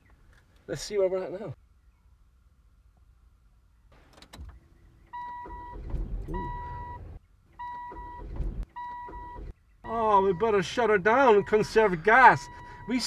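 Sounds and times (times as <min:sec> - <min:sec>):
low car rumble: 0:03.8 - 0:13.0
dashboard warning chime beeping: 0:05.1 - 0:13.0.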